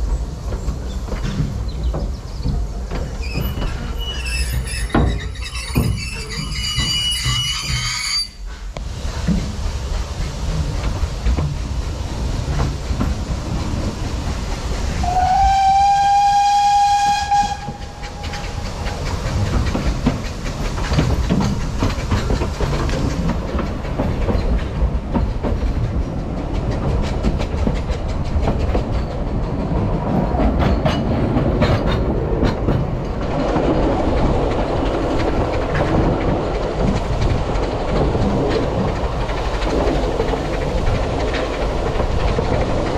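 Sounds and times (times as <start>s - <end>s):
clickety-clack of rail joints: 0.0s - 42.9s
train wheels rumbling on rail: 0.0s - 42.9s
steam train whistle: 15.0s - 18.4s.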